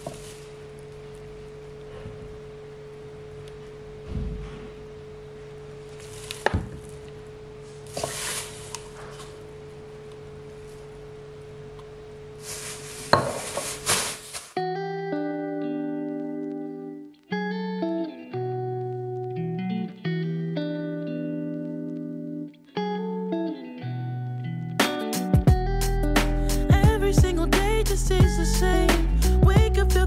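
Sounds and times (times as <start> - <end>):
plastic bags rustling: 0.0 - 1.0, 5.9 - 9.5, 12.4 - 14.6
steady hum: 0.0 - 14.6
bottles set down with knocks: 13.1 - 13.6.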